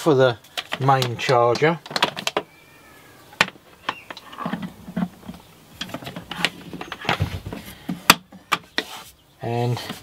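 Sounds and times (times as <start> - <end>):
cable and plastic casing handling: 0.5 - 2.5.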